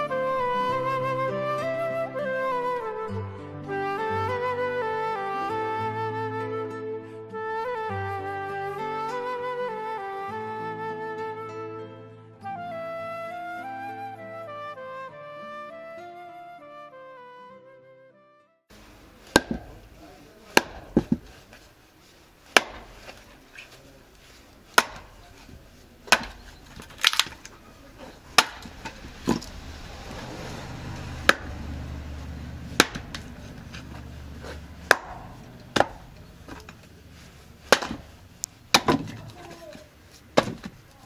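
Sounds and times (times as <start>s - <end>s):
hatchet chopping firewood: 18.7s - 21.6s, 22.4s - 31.9s, 32.6s - 41.0s.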